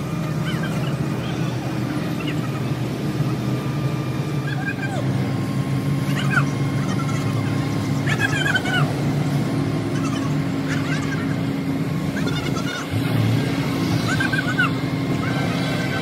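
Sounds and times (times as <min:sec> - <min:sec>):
low machine hum: 0:00.0 - 0:16.0
high-pitched bending calls: 0:06.0 - 0:16.0.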